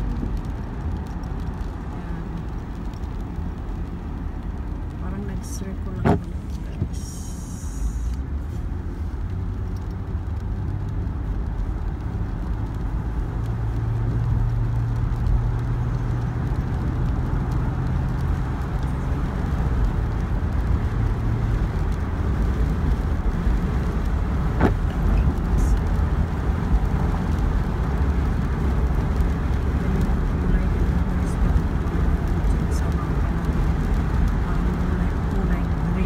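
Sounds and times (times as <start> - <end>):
car engine and tyre rumble: 0.0 - 36.0.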